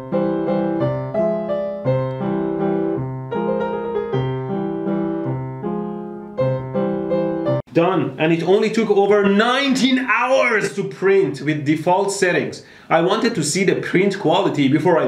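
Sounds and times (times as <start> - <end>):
piano music: 0.0 - 7.7.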